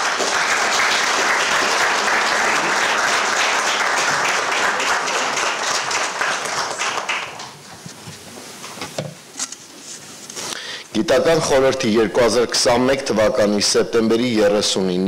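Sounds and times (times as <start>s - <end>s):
audience applauding: 0.0s - 7.6s.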